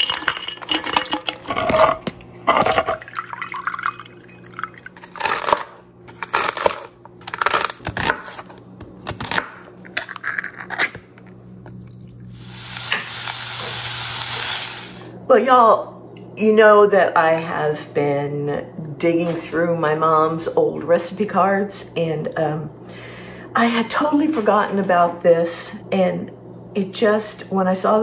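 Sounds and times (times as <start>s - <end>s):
liquid pouring into bowl: 0.0s - 1.8s, 2.8s - 5.1s, 11.7s - 12.3s
nuts clattering into cup: 0.0s - 3.8s, 9.8s - 12.1s.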